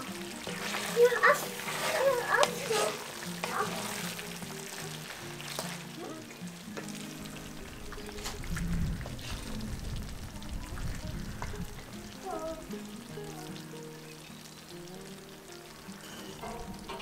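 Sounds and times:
spatula stirring in a pot: 0:00.0 - 0:07.4
background music: 0:00.0 - 0:17.0
food sizzling lightly: 0:00.0 - 0:17.0.

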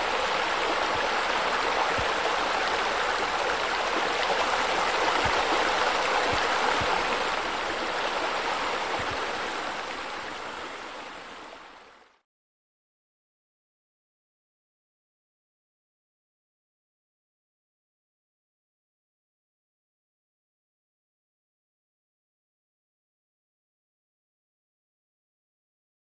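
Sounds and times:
splashing flowing water: 0:00.0 - 0:11.8.

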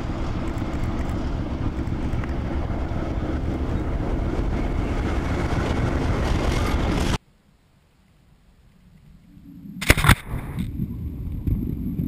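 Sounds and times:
diesel locomotive engine drone: 0:00.0 - 0:07.2.

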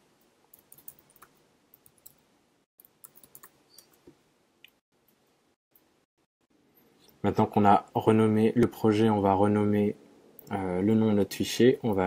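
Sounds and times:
faint keyboard typing: 0:00.2 - 0:05.9.

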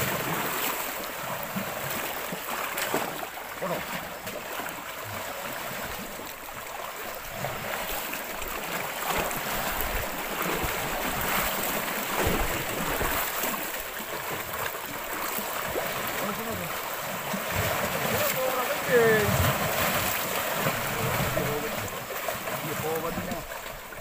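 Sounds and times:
waves lapping against rocks: 0:00.0 - 0:24.0
wind: 0:00.0 - 0:24.0.

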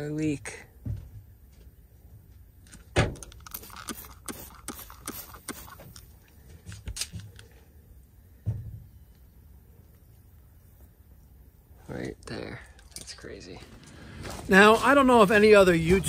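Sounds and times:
sharp clicks and crackles: 0:02.7 - 0:07.5.

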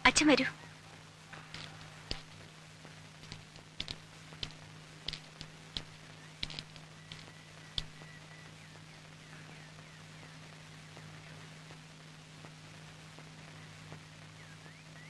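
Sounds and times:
faint low hum: 0:00.0 - 0:15.0
light sharp clicks and taps: 0:01.5 - 0:02.5, 0:03.2 - 0:08.0.

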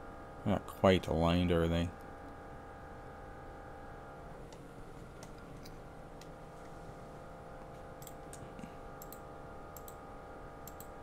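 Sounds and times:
electrical hum: 0:00.0 - 0:11.0
computer mouse clicking: 0:08.0 - 0:09.2, 0:09.8 - 0:10.0, 0:10.6 - 0:11.0.

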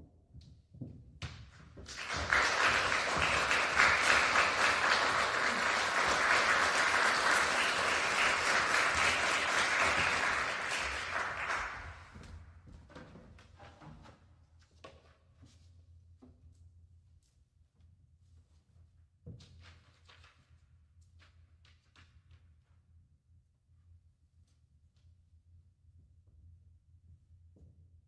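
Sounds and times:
audience applauding: 0:01.9 - 0:12.2.

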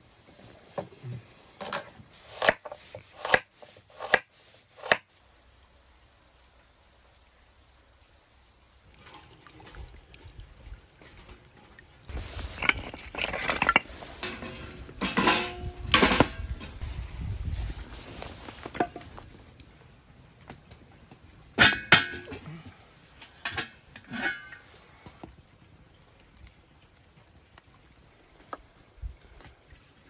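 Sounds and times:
crackling wood fire: 0:07.6 - 0:30.0
logs clanking against metal stove: 0:12.5 - 0:16.8, 0:21.6 - 0:22.6, 0:23.2 - 0:24.7
pot clanking onto stove: 0:14.2 - 0:16.4.

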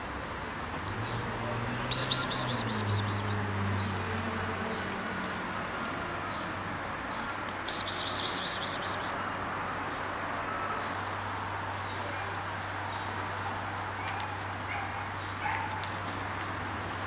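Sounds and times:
bird chattering call: 0:01.9 - 0:03.4, 0:07.7 - 0:09.2
faint thin high whistles: 0:01.9 - 0:03.4, 0:07.6 - 0:09.2.

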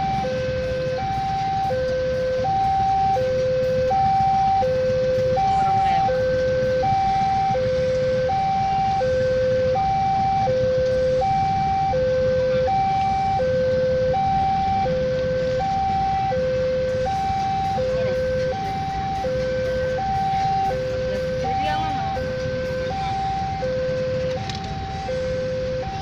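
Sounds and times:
two-tone crossing alarm: 0:00.0 - 0:26.0.

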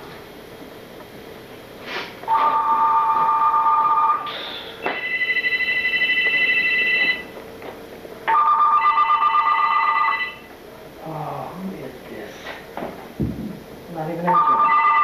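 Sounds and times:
electronic ringer trilling: 0:02.3 - 0:07.3, 0:14.3 - 0:15.0.

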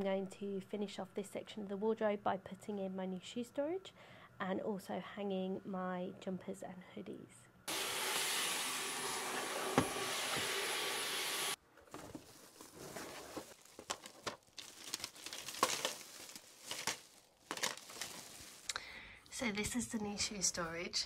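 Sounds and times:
stick vacuum hissing: 0:07.7 - 0:11.6
plastic packaging crinkling: 0:11.9 - 0:18.8.

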